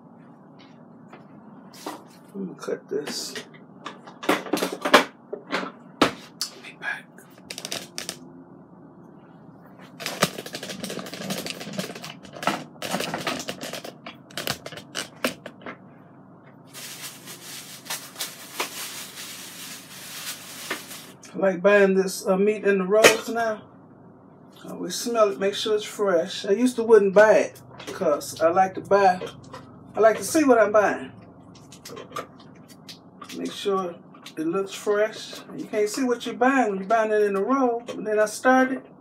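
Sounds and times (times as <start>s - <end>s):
plastic crinkling and rustling: 16.7s - 21.2s.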